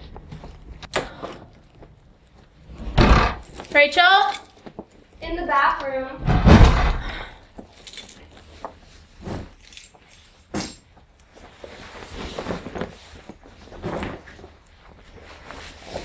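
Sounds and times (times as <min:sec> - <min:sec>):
footsteps: 0:01.8 - 0:07.7
backpack rustling: 0:07.4 - 0:16.0.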